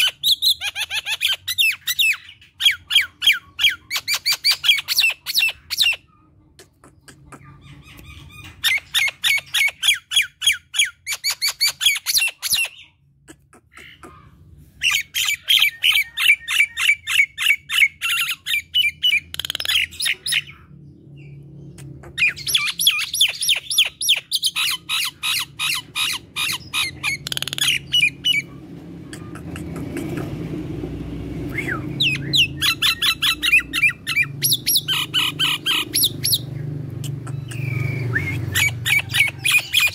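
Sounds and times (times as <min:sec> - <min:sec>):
myna chattering: 0:06.5 - 0:08.0, 0:26.9 - 0:30.8.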